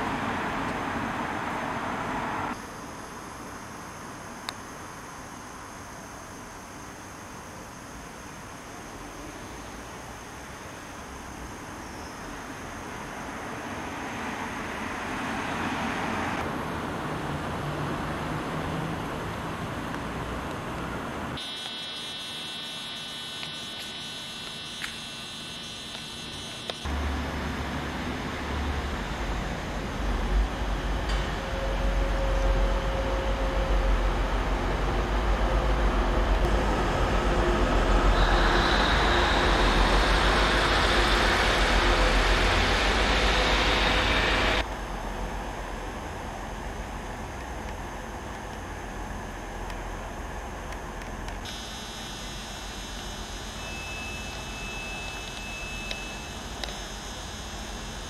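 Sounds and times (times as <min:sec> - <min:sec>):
high-pitched electronic buzz: 0:21.4 - 0:29.2, 0:31.3 - 0:44.6, 0:51.4 - 0:58.0
diesel locomotive engine running: 0:25.9 - 0:48.2
thin high whistle: 0:53.6 - 0:56.4.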